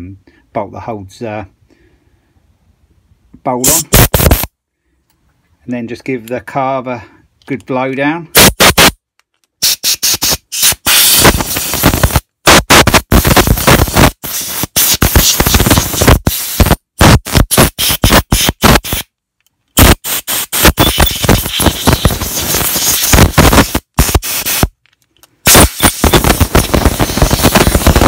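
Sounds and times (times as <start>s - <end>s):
compressed air blow gun hissing: 3.7s - 4.5s, 9.6s - 12.2s, 13.1s - 16.8s, 17.5s - 19.1s, 19.8s - 24.8s, 25.4s - 28.0s.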